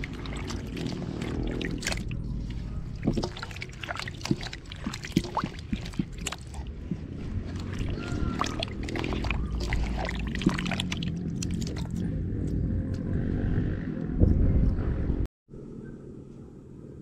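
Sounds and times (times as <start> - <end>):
water sloshing in basin: 0.0 - 12.1.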